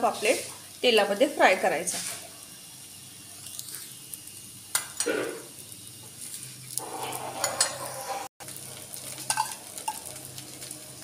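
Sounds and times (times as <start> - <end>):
fish sizzling in oil: 0.0 - 11.0
scraping on pan: 6.8 - 8.3.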